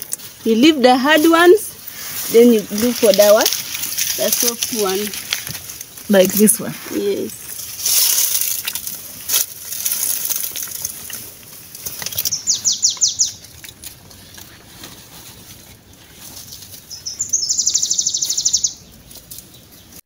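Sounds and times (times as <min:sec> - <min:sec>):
vines and leaves rustling: 0:00.0 - 0:20.0
bird trilled call: 0:12.2 - 0:13.4, 0:16.9 - 0:18.9.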